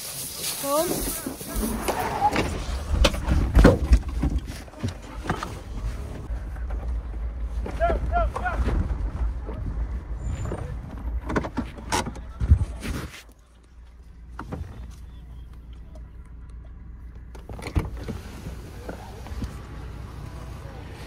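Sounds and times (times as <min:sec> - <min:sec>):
low rumble inside car: 0:02.2 - 0:21.0
car door shutting: 0:17.3 - 0:19.5.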